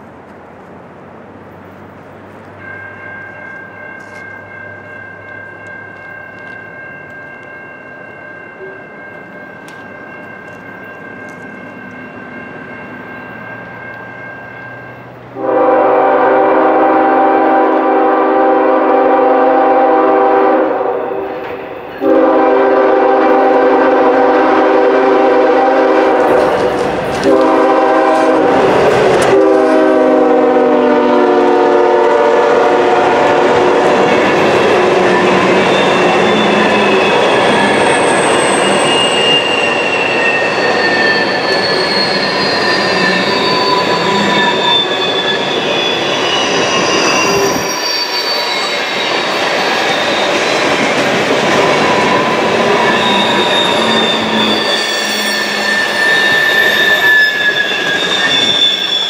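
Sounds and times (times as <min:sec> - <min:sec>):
freight train passing rumble: 0:00.0 - 0:59.0
locomotive horn blasts: 0:15.4 - 0:21.4, 0:22.0 - 0:37.2.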